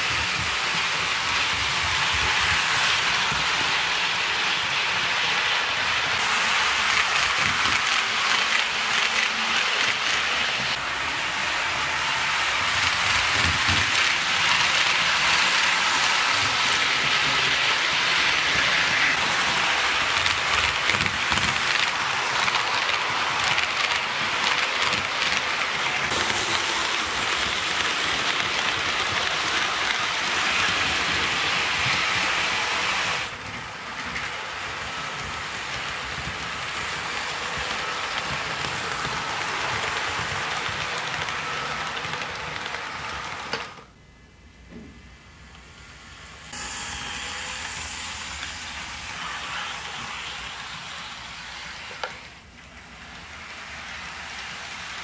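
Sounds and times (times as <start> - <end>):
model train wheels hissing on rails: 0.0 - 44.0, 45.2 - 55.0
fast clicking from rail joints: 12.6 - 33.3.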